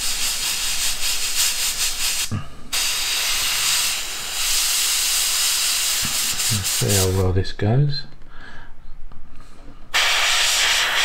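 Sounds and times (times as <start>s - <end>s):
airbrush spraying hiss: 0.0s - 7.3s, 9.9s - 11.0s.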